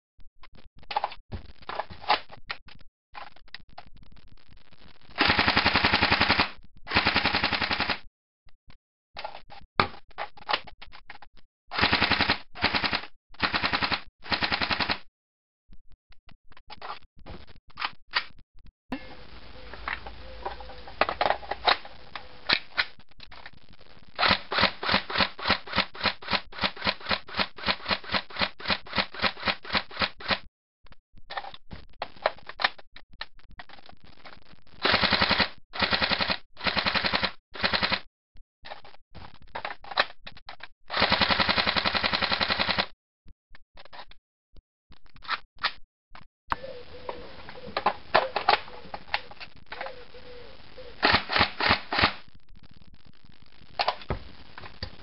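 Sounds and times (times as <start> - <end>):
airsoft rifle firing: 5.2 - 8.0, 51.0 - 52.2.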